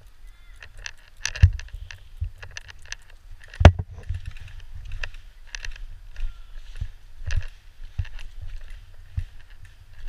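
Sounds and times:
footsteps on wet grass: 0:00.0 - 0:10.0
clicks and low thumps: 0:03.5 - 0:10.0.

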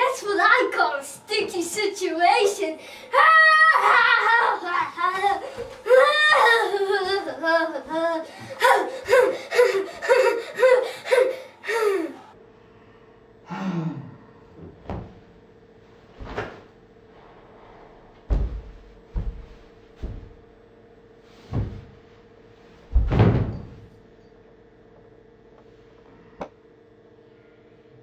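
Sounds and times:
faint steady hum: 0:00.0 - 0:28.0
child crying out: 0:03.1 - 0:12.3
dull thumps: 0:16.1 - 0:20.5, 0:21.4 - 0:22.1, 0:22.9 - 0:23.9.

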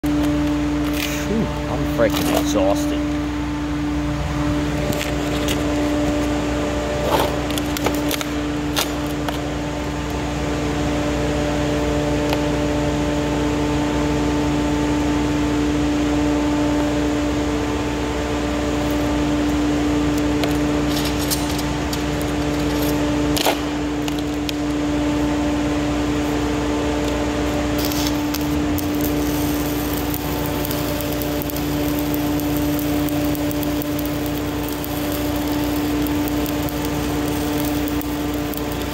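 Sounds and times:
welding arc crackling: 0:00.0 - 0:10.3, 0:18.4 - 0:38.9
steady machine hum: 0:00.0 - 0:38.9.

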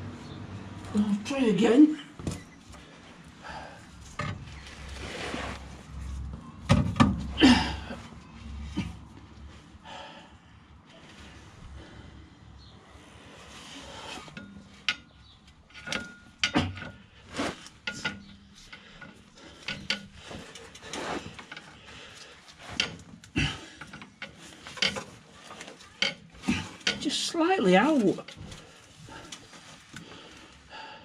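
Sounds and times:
metal parts clinking and knocking: 0:22.7 - 0:27.1.

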